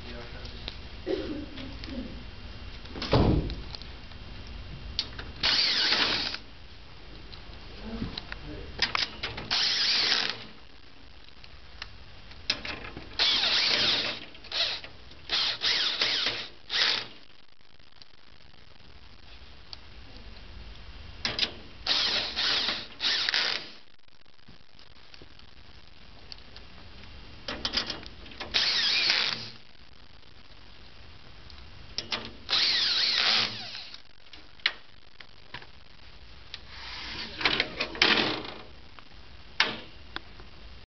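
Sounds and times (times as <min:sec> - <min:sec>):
cordless drill driving screws: 0:05.4 - 0:06.4, 0:09.4 - 0:10.5, 0:13.2 - 0:17.2, 0:21.8 - 0:23.8, 0:28.5 - 0:29.6, 0:32.5 - 0:34.0.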